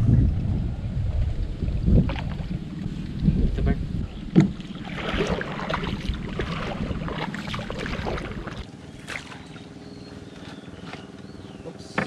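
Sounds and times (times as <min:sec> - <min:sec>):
low rumble: 0:00.0 - 0:09.0
water splashing and sloshing: 0:01.2 - 0:11.3.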